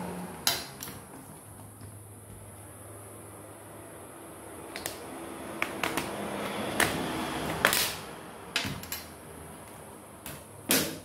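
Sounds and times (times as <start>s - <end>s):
plastic clips snapping: 4.7s - 5.0s, 5.6s - 8.0s.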